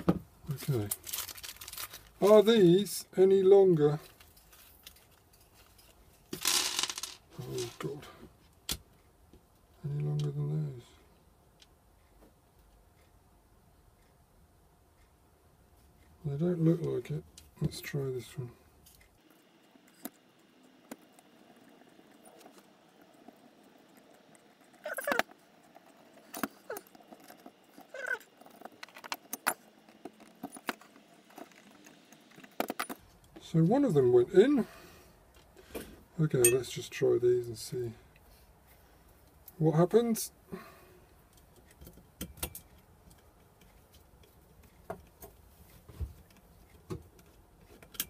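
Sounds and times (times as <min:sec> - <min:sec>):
light metallic clicks and taps: 0:41.3 - 0:48.0.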